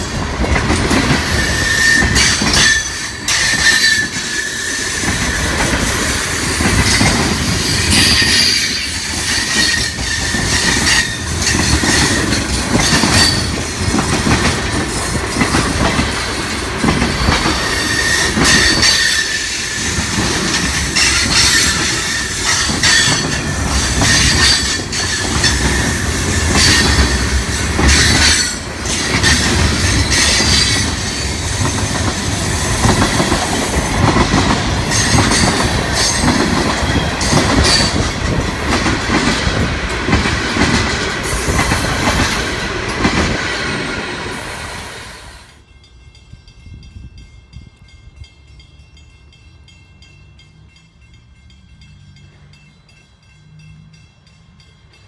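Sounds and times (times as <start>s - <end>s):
train wheels clacking on rails: 0.0s - 55.0s
high wheel squeal: 1.2s - 5.6s, 6.8s - 13.5s, 17.6s - 20.0s.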